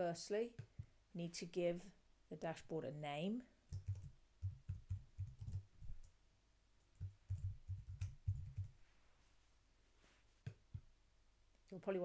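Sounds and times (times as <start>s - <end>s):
typing on computer keyboard: 3.7s - 6.1s, 6.9s - 8.8s.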